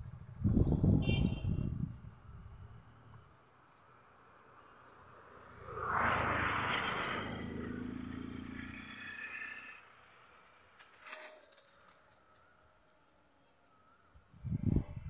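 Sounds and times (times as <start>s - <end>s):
vehicle engine passing: 4.4s - 10.3s
short scrapes and clicks: 10.5s - 12.5s.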